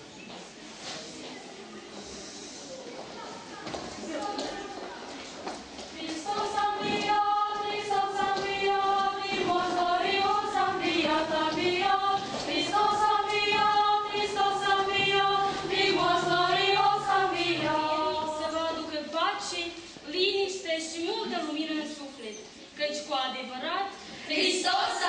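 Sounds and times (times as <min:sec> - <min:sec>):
girls' choir singing: 0:05.9 - 0:19.8, 0:24.2 - 0:25.0.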